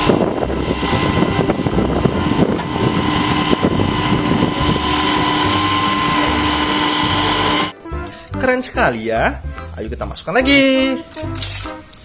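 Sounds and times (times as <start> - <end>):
truck engine running: 0.0 - 7.7
steady whine: 0.0 - 7.8.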